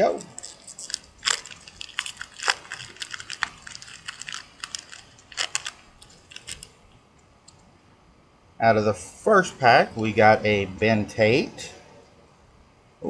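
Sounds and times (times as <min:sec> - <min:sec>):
packaging crinkling: 0:00.0 - 0:06.8.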